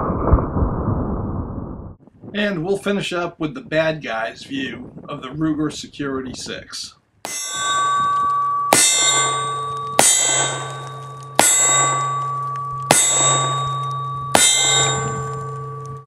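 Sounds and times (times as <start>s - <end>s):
metallic ringing: 7.3s - 16.0s.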